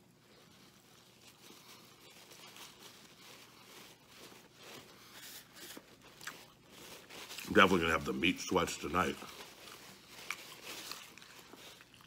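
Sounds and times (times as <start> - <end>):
person chewing food: 0.5 - 7.4, 9.6 - 12.0.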